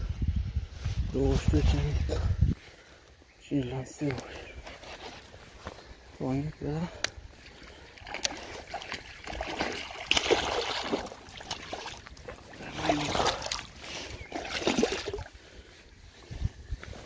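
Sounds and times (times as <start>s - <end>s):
fish thrashing and splashing: 7.6s - 15.3s.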